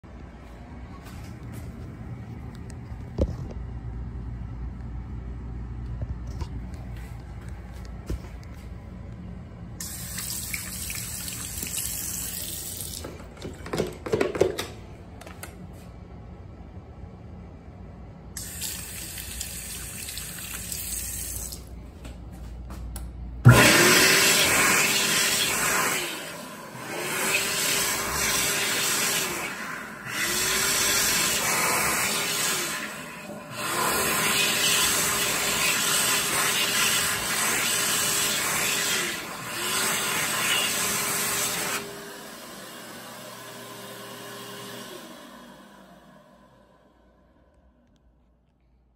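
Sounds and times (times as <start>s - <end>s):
faucet running: 9.8s - 13.2s, 18.4s - 21.7s, 23.5s - 41.7s
hand dryer blowing: 9.8s - 13.8s, 23.4s - 47.0s.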